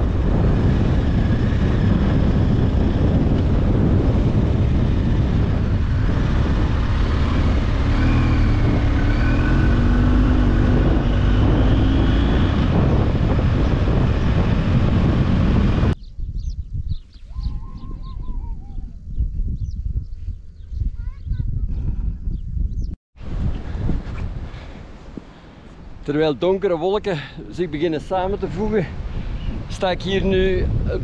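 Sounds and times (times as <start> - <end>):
vehicle engine and road noise: 0.0 - 16.0
wind noise on microphone: 0.0 - 31.0.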